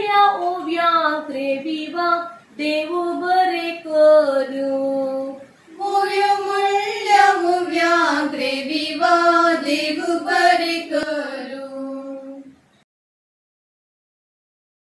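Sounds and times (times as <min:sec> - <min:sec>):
women singing in unison: 0:00.0 - 0:12.7.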